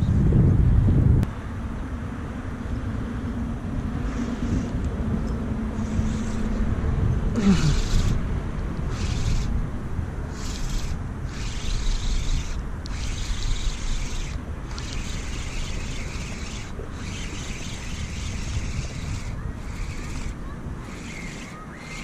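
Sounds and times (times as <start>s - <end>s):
distant engine hum: 0.0s - 22.0s
wind rumbling on microphone: 0.0s - 22.0s
fishing reel cranking: 5.8s - 6.6s, 7.4s - 8.2s, 8.9s - 9.6s, 10.3s - 22.0s.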